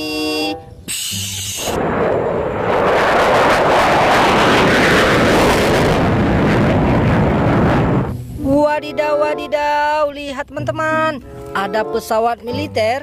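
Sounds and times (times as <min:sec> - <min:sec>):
jet engine roaring: 0:01.4 - 0:08.4.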